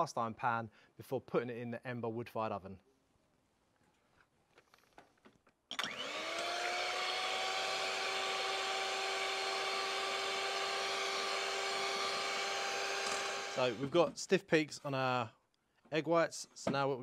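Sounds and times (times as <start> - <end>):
electric hand mixer whirring: 5.7 - 14.0.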